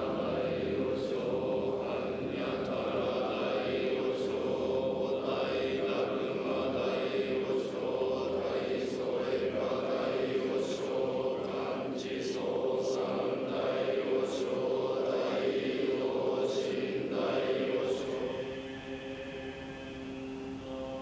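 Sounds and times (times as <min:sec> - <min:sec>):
group of monks chanting: 0:00.0 - 0:21.0.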